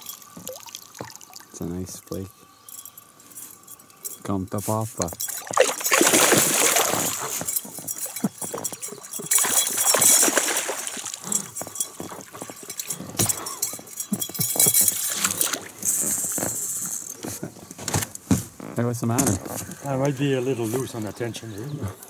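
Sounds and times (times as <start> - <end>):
fish splashing at water surface: 5.2 - 8.2, 9.0 - 11.4.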